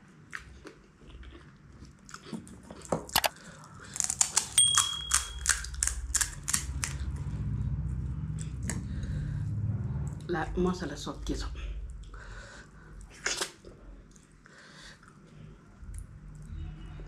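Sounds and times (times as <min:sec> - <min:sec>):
crisp shells crackling: 0:03.6 - 0:07.0
quick clicks with bell ding: 0:04.6 - 0:05.6.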